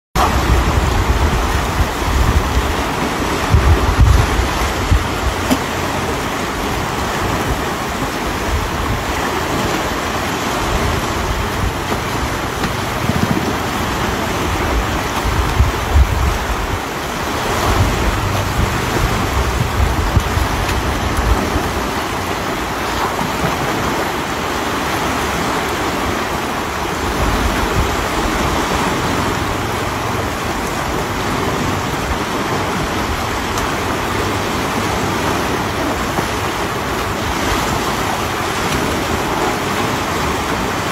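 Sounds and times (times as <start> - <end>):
river rushing: 0.2 - 40.9
wind buffeting microphone: 0.2 - 40.9.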